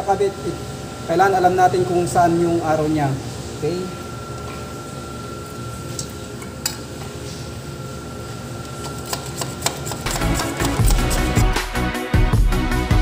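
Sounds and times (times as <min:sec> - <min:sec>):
hacksaw cutting plastic pipe: 0:09.0 - 0:11.6
music: 0:10.0 - 0:13.0.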